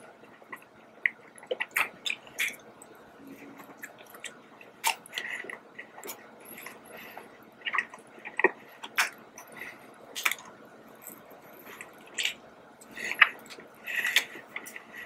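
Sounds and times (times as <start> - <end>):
person chewing: 0.2 - 15.0
lip smacks: 11.8 - 12.4.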